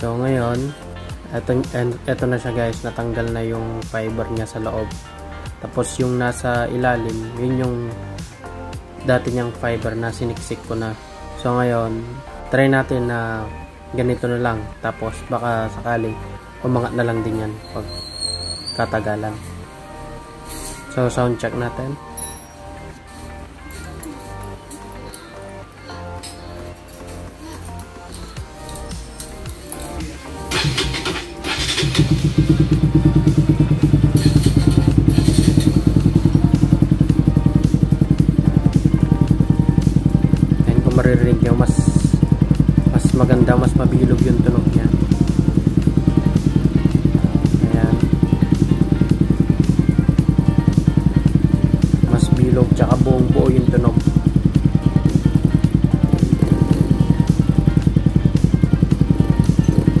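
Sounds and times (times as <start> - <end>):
motorcycle engine idling: 30.5 - 60.0.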